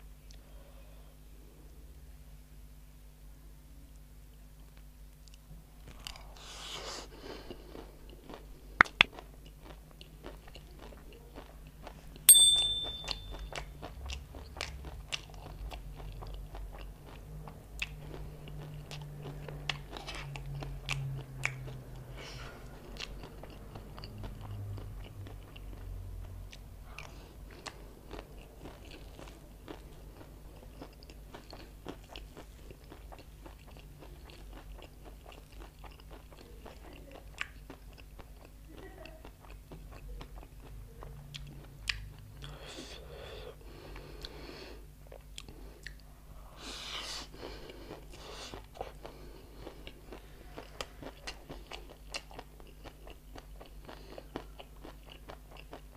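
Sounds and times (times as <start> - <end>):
crunchy chewing: 5.2 - 12.2, 13.3 - 38.6, 46.8 - 55.9
metal spoon clinking on plate: 12.3 - 13.5.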